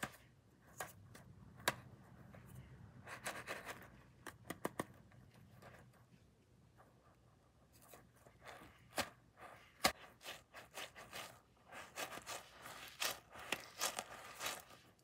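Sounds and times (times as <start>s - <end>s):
squishy toy rubbing and squishing: 7.6s - 15.0s.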